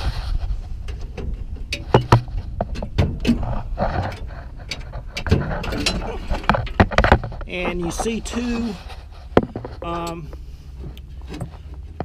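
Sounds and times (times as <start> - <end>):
metal panel knocks and clunks: 0.9 - 7.5.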